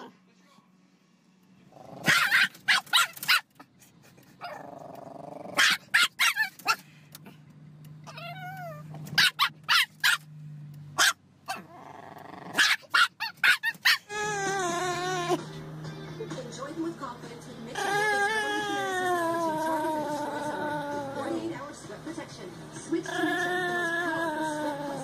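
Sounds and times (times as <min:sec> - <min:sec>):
dog growling: 0:01.7 - 0:02.2, 0:04.4 - 0:05.6, 0:11.5 - 0:12.6, 0:14.1 - 0:15.4, 0:17.7 - 0:21.5, 0:22.9 - 0:25.0
small dog yapping: 0:02.0 - 0:03.6, 0:05.5 - 0:06.8, 0:08.1 - 0:10.3, 0:11.0 - 0:15.4, 0:17.8 - 0:21.2, 0:23.1 - 0:25.0.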